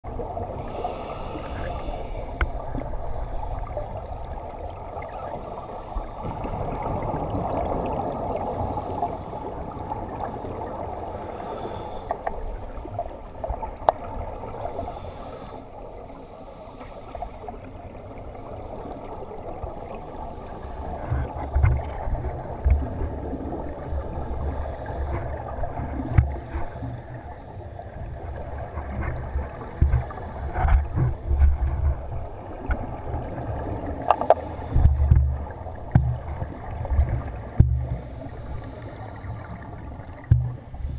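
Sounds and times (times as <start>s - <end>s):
steady low underwater rumble: 0.0s - 40.9s
low thumps of handling: 37.0s - 38.0s, 40.2s - 40.6s.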